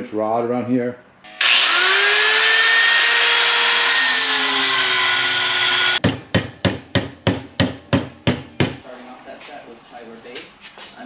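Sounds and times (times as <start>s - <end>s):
angle grinder cutting steel: 1.3s - 6.0s
hammer striking steel rod: 6.0s - 8.8s.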